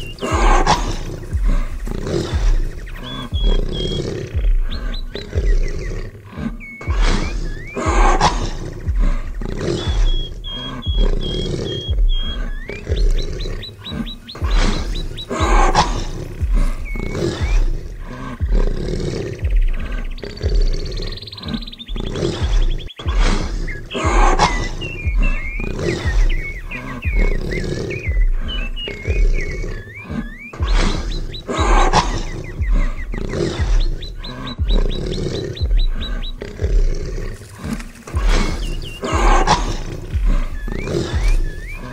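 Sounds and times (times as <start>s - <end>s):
big cat roaring and growling: 0.0s - 41.9s
birds chirping: 0.0s - 41.9s
music with low beat: 0.0s - 41.9s.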